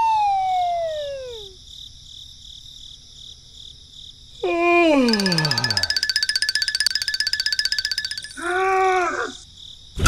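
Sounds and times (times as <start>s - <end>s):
falling whistle tone: 0.0s - 1.5s
crickets chirping: 0.0s - 10.0s.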